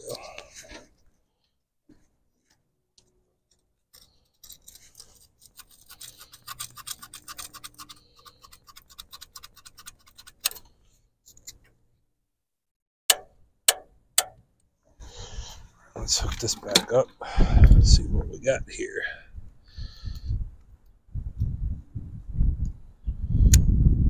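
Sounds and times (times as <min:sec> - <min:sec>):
scratchy sanding strokes: 0:04.6 - 0:10.4
sharp click: 0:23.5 - 0:23.7.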